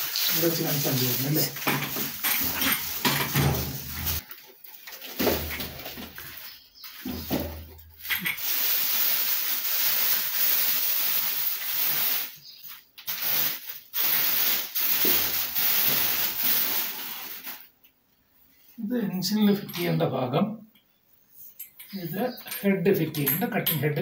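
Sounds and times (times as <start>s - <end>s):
plastic film crinkling: 0.0s - 17.8s.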